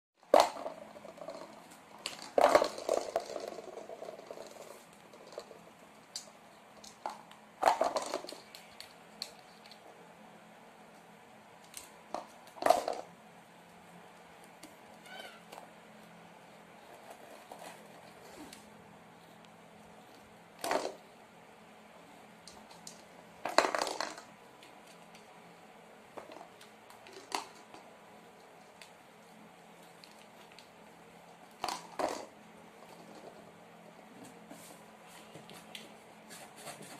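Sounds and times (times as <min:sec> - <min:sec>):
plastic ball knocking in basket: 0:00.3 - 0:05.6, 0:06.8 - 0:08.6, 0:12.1 - 0:13.1, 0:20.6 - 0:21.0, 0:22.7 - 0:24.4, 0:31.6 - 0:33.4.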